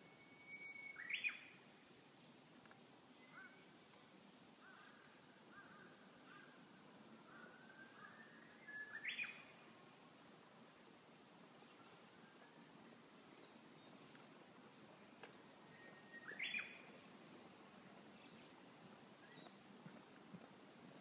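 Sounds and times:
rising bird whistle: 0.0 - 1.5, 7.5 - 9.4, 15.7 - 16.8
bird singing: 0.0 - 1.7, 3.2 - 3.8, 7.2 - 9.6, 11.4 - 14.1, 14.7 - 19.6, 20.4 - 21.0.

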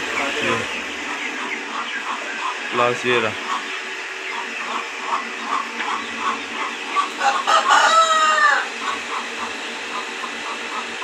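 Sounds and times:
bird peeps: 0.1 - 2.8, 3.4 - 7.5
rooster crowing: 7.1 - 8.9.

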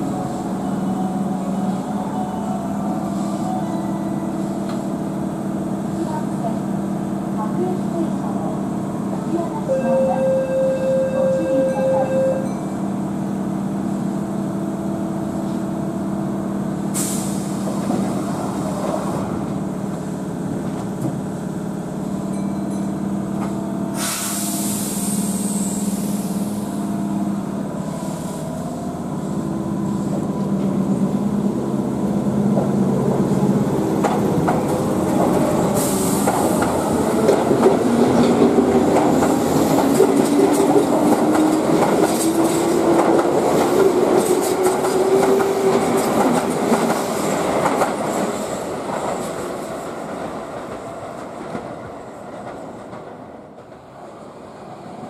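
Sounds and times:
train wheel noise: 22.3 - 55.0
compressed-air hiss: 24.0 - 26.5.

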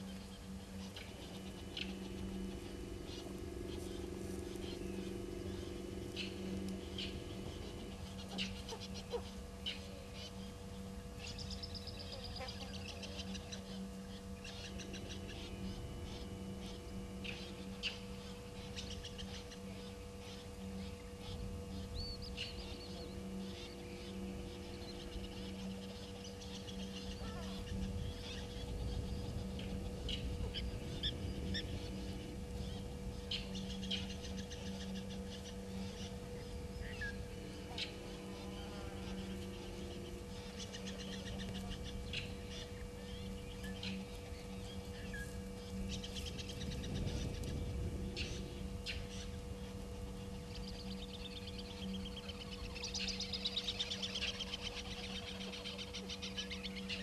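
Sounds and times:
low rumble: 0.0 - 53.4
bird calls and chirps: 0.0 - 57.0
low hum: 0.0 - 57.0.

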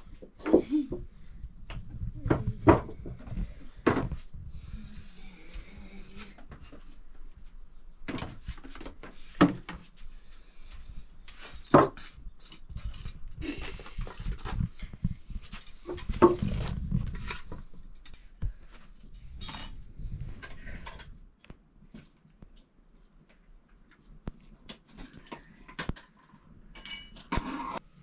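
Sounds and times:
metal pots clinking and scraping: 26.8 - 27.8.

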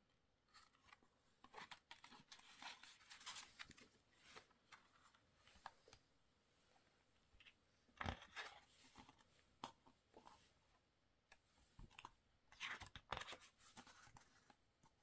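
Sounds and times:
pages rustling: 0.5 - 6.0, 11.8 - 15.0.

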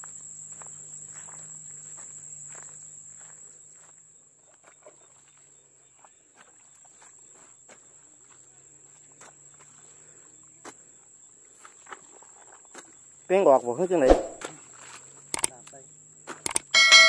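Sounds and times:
insects trilling: 0.0 - 17.0
hoes chopping into wet soil: 14.0 - 14.6.

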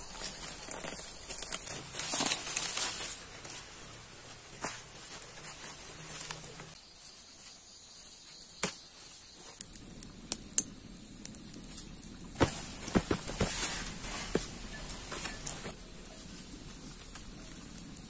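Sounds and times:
twigs snapping and crackling: 0.0 - 3.7, 9.6 - 16.0
hands rustling undergrowth: 0.0 - 7.7, 11.5 - 18.0.

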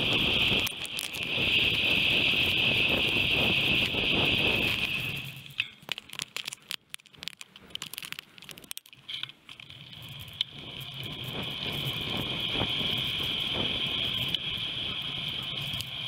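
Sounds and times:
wind noise on microphone: 0.0 - 5.5, 10.0 - 16.0
bike clicks and rattles: 0.0 - 16.0.

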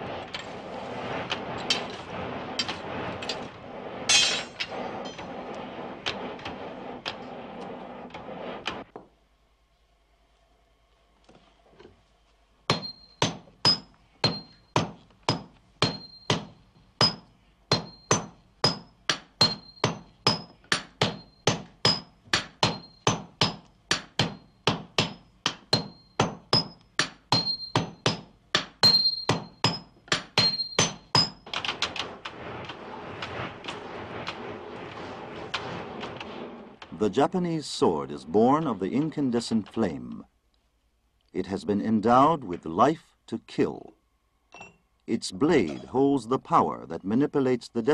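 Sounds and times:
forge fire rushing: 0.0 - 8.9, 31.0 - 40.0
hammer striking steel on anvil: 4.1 - 5.2, 12.7 - 31.4.

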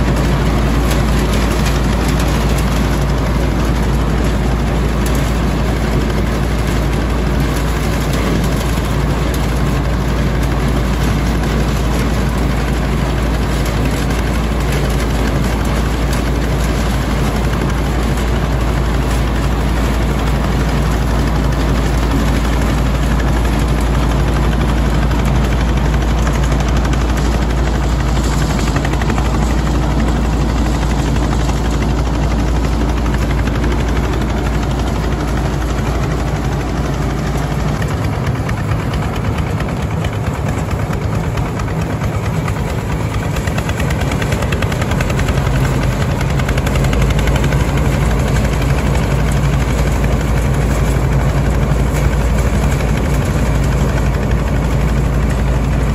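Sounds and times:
cutter chopping grass: 0.0 - 55.9
tractor engine running: 0.0 - 55.9.

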